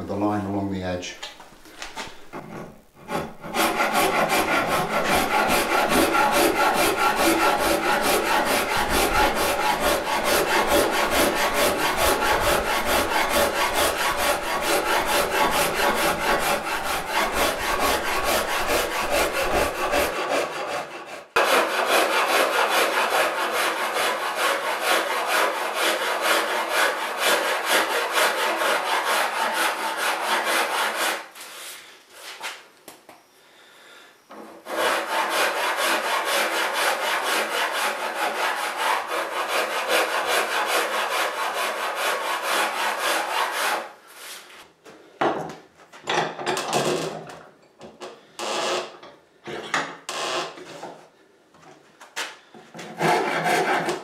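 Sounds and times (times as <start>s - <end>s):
rasp cutting wood: 2.3s - 31.3s, 34.4s - 44.3s, 52.8s - 54.0s.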